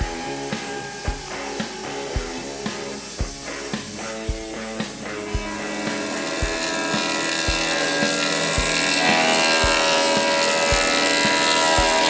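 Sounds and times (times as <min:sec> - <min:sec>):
background music with low beat: 0:00.0 - 0:12.0
band saw cutting log: 0:05.8 - 0:12.0.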